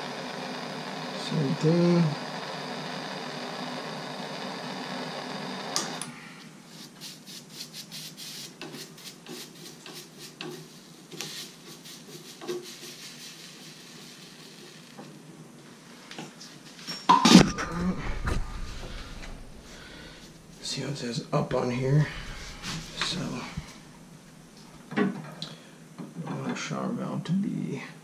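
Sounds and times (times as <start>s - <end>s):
torch shutoff click: 0.0s - 6.2s, 17.3s - 20.4s, 21.7s - 24.7s
torch flame hissing: 0.0s - 15.9s, 17.6s - 24.9s.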